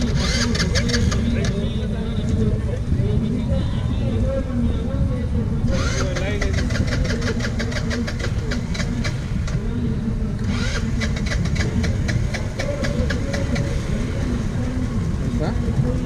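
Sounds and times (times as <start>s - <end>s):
small motorcycle engine running: 0.0s - 2.0s, 5.6s - 16.0s.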